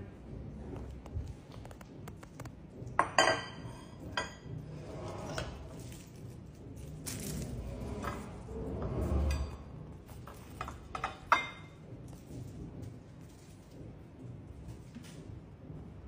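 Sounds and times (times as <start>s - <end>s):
ceramic dishes clinking on countertop: 3.0s - 4.5s, 10.6s - 11.7s.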